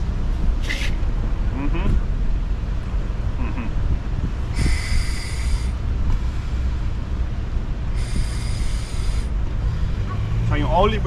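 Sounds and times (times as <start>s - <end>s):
wind rumble on microphone: 0.0s - 10.8s
scuba regulator hissing breaths: 4.5s - 5.8s, 7.9s - 9.8s.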